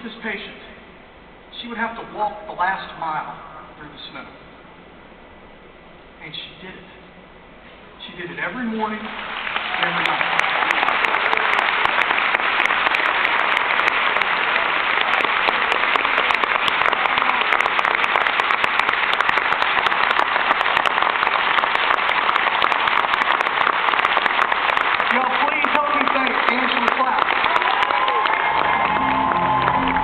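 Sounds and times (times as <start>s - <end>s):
audience applauding: 9.0s - 30.0s
hands clapping close by: 9.4s - 30.0s.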